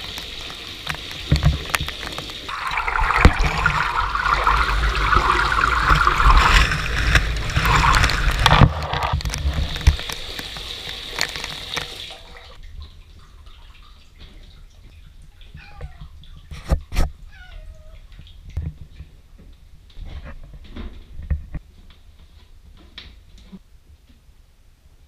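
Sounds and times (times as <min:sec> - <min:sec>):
shower water splashing on tiles: 0:00.0 - 0:19.2.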